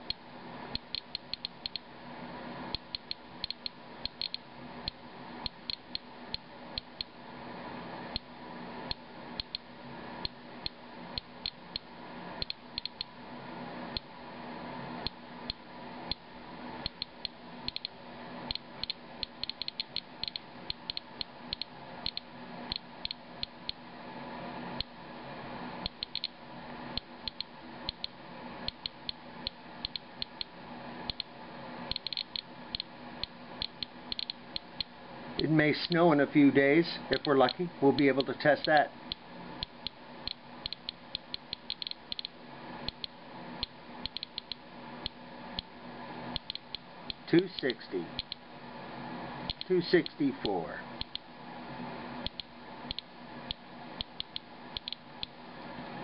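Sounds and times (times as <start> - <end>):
geiger counter clicking: 0.0 - 1.8, 2.7 - 7.1, 8.9 - 13.1, 16.8 - 23.8, 25.9 - 26.3, 27.0 - 28.1, 29.8 - 30.5, 31.1 - 31.3, 31.9 - 34.9, 37.1 - 44.6, 46.4 - 48.4, 51.0 - 51.3, 52.2 - 55.4.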